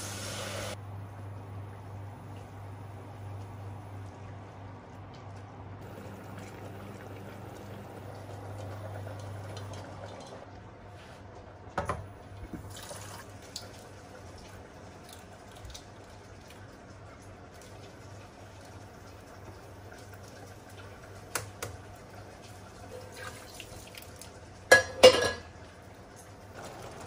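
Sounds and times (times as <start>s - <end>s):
water sloshing and dripping: 12.2s - 21.4s, 22.2s - 24.6s.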